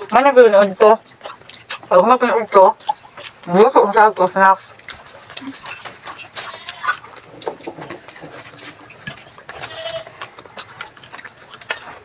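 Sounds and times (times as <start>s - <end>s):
chewing: 0.0s - 12.0s
very high chirps: 8.3s - 10.3s.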